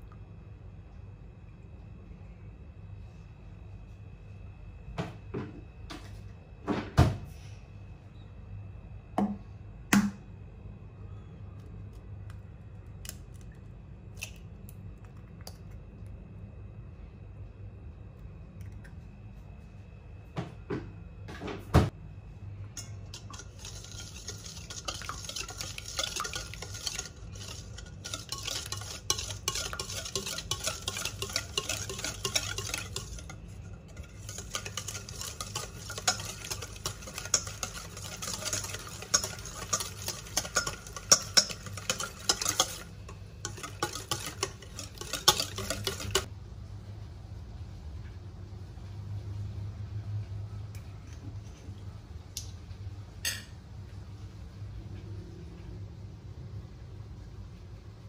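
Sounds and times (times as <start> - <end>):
low steady hum: 0.0 - 58.0
utensil clinking on bowl: 22.8 - 46.3
utensil scraping mixing bowl: 22.8 - 46.3.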